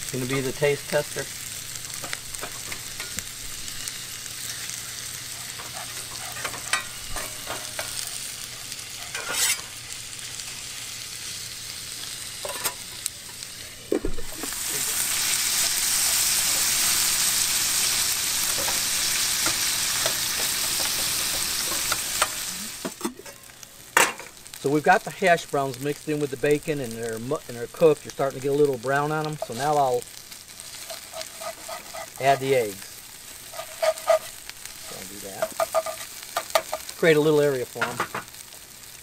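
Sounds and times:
bacon and potatoes sizzling: 0:00.0 - 0:39.0
spatula scraping pan: 0:05.3 - 0:09.7, 0:30.6 - 0:32.6, 0:33.4 - 0:36.9.

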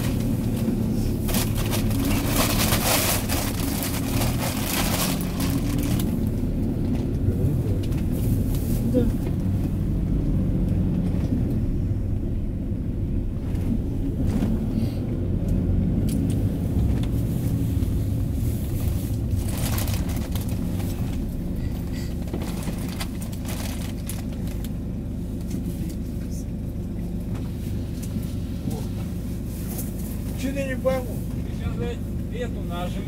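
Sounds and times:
engine and road rumble: 0:00.0 - 0:33.0.

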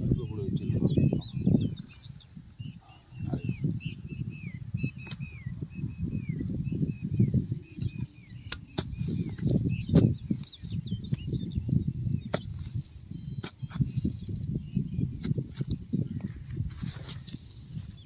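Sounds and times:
bird chirping: 0:00.0 - 0:16.3, 0:16.9 - 0:18.0
hoe chopping into soil: 0:08.5 - 0:10.5, 0:12.2 - 0:12.8, 0:13.4 - 0:13.9.

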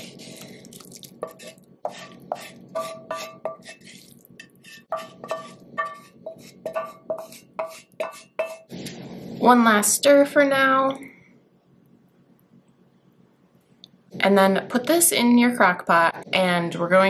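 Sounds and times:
wooden spatula knocking on pan: 0:04.9 - 0:08.6.

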